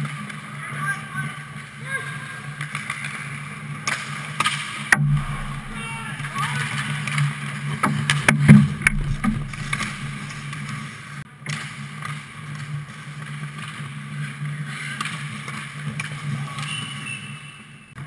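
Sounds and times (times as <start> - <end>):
low hum: 5.0 - 6.5, 8.5 - 10.5.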